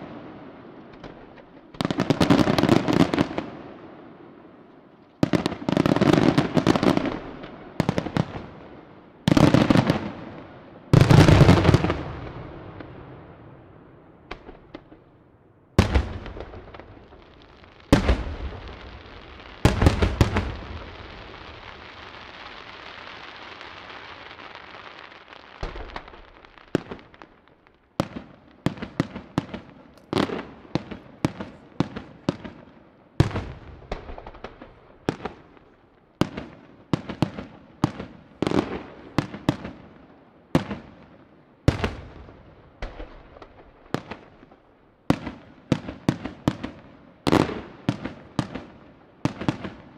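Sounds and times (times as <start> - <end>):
firework booms: 5.2 - 13.6, 15.8 - 25.0, 25.6 - 27.4, 28.0 - 40.0.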